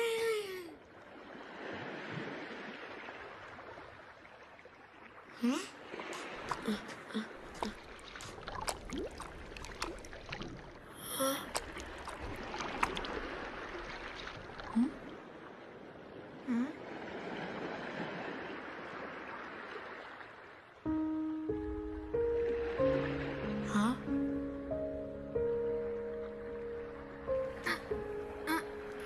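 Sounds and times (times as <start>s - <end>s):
surf washing: 0.0s - 21.5s.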